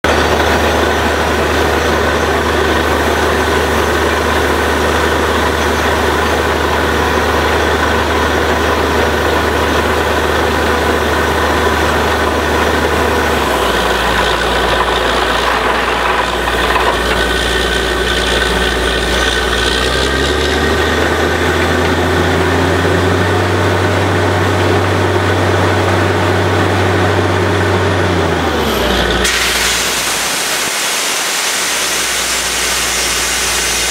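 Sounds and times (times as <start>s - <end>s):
drilling rig engine running: 0.0s - 33.9s.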